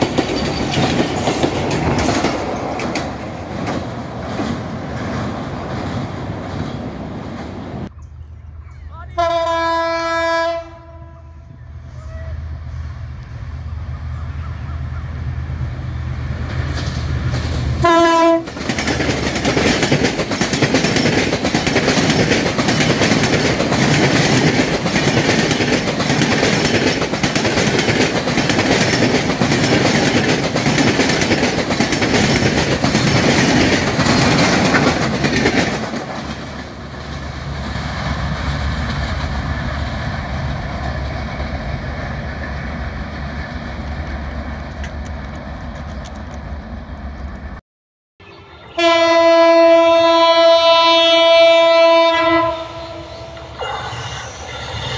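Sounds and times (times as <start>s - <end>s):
train wheels clattering: 0.0s - 7.6s, 16.5s - 43.9s
train horn blast: 9.1s - 12.8s, 17.8s - 18.5s, 48.2s - 54.3s.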